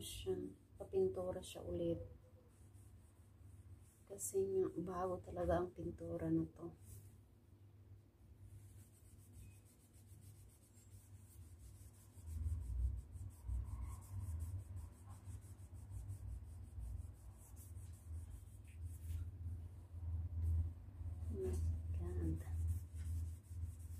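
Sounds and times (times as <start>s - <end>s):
cloth scrubbing a wall: 8.5s - 23.9s.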